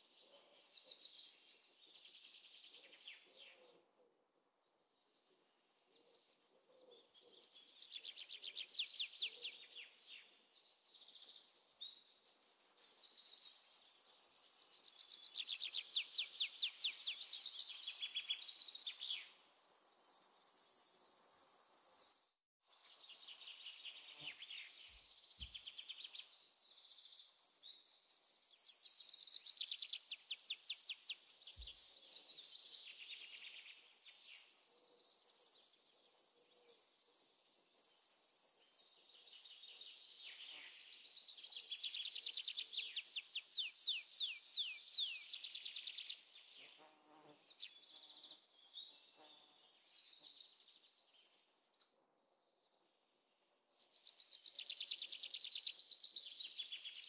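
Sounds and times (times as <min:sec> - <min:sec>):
insects chirring: 0:17.5 - 0:22.4, 0:32.5 - 0:46.0.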